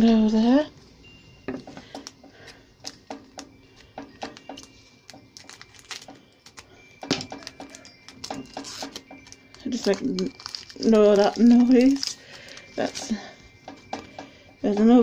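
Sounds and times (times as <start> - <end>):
foil wrapper crinkling: 1.9 - 15.0
scissors cutting foil: 4.1 - 15.0.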